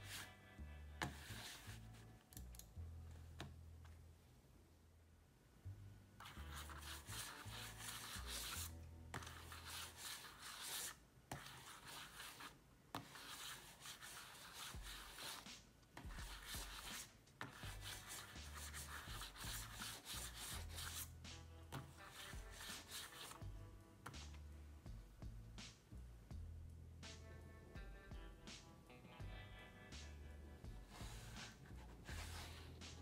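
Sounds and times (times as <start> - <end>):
mouse sliding on hard mouse pad: 6.2 - 15.4, 30.9 - 33.0.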